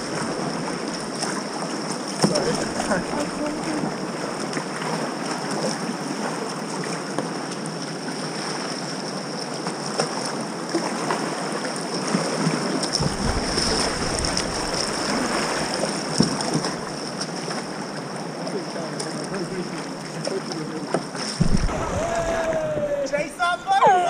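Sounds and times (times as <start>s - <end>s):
whitewater rushing: 0.0s - 5.5s, 11.2s - 18.6s, 21.3s - 24.0s
paddle strokes splashing: 0.0s - 23.6s
low rumble: 21.4s - 23.3s.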